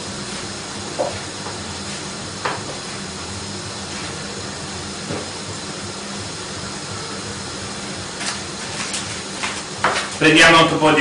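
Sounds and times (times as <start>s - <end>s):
food hissing on stovetop: 0.0s - 11.0s.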